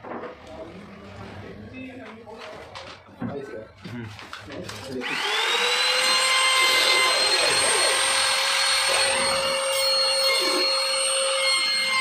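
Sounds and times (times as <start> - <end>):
trim router whining: 5.0 - 12.0.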